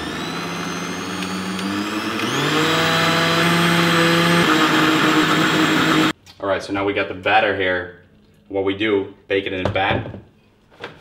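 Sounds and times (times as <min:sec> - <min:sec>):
blender motor running: 0:00.0 - 0:06.1.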